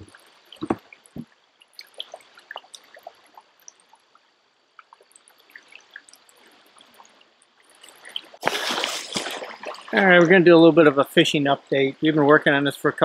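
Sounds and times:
small water plops and drips: 0.0 - 10.4
river water trickling: 0.0 - 13.0.

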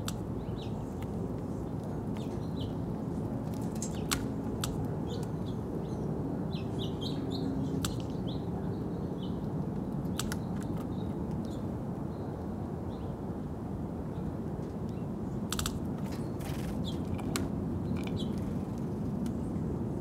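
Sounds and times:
small birds chirping: 0.0 - 13.1, 16.0 - 18.8
sharp clicks: 10.0 - 10.9.

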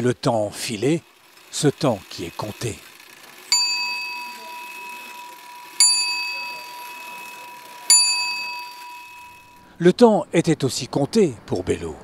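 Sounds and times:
clock bell striking: 3.5 - 9.7.

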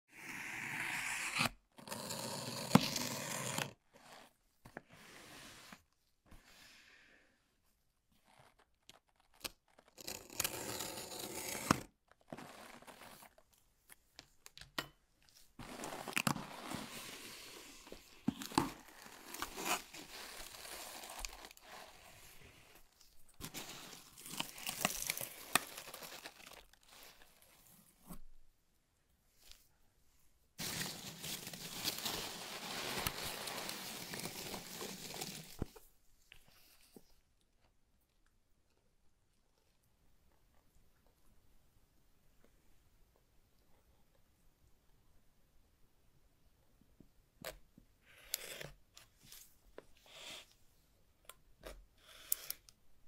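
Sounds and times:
tape tearing: 8.8 - 13.4, 30.6 - 35.7.

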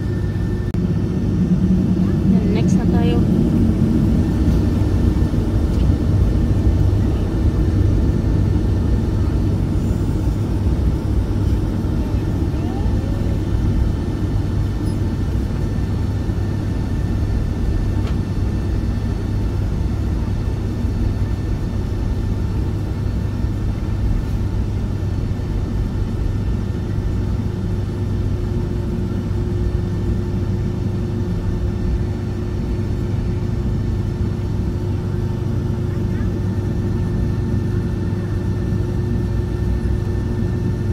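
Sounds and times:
jet cabin rumble while taxiing: 0.0 - 40.9.

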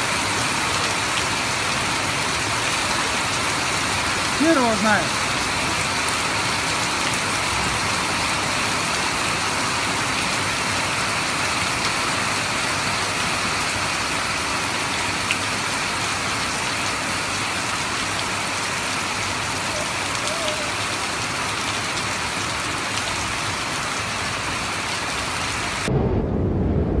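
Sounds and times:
heavy rain on car roof: 0.0 - 25.9.

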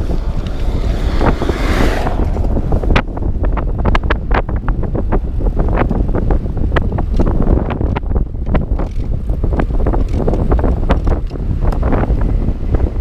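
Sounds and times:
wind buffeting microphone: 0.0 - 13.0
bike knocks and rattles: 6.7 - 12.1.

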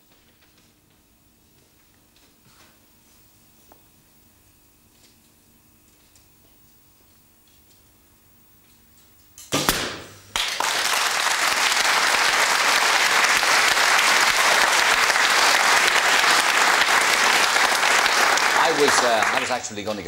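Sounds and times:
balloon bursting crack: 9.5 - 10.2
bow shot: 9.5 - 10.2
audience applauding: 10.3 - 20.0.

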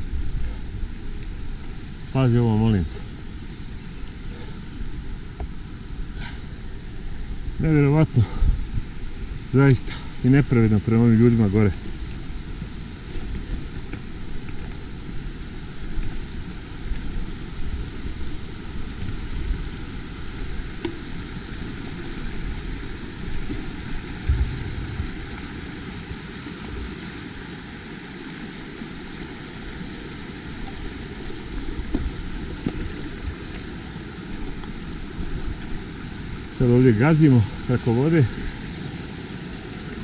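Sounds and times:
mountain bike rolling on rough track: 0.0 - 40.0.

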